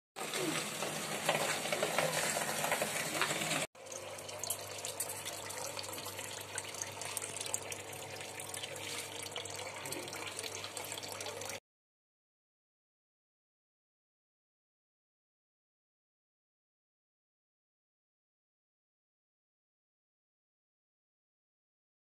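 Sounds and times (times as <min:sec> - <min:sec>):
water splashing and trickling: 0:00.3 - 0:11.6.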